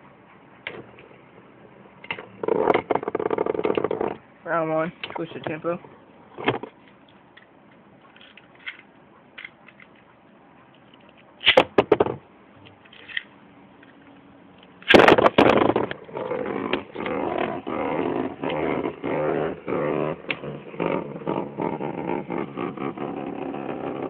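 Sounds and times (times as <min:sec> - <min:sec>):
spinning tops rattling and grinding: 0:14.8 - 0:24.0.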